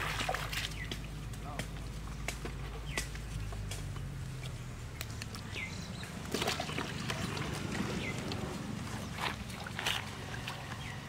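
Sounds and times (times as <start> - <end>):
fish flapping in water: 0.0 - 1.2, 5.3 - 11.0
water splashing in plastic basin: 0.0 - 1.2, 6.1 - 10.8.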